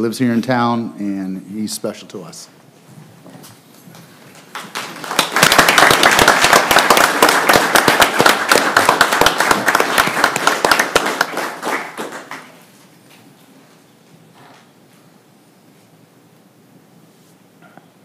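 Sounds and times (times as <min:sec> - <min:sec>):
crowd applauding: 0:04.3 - 0:12.6.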